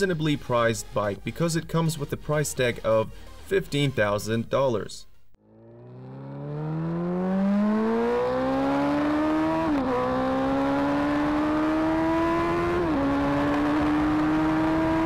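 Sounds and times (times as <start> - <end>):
motorcycle engine accelerating: 5.4 - 15.0.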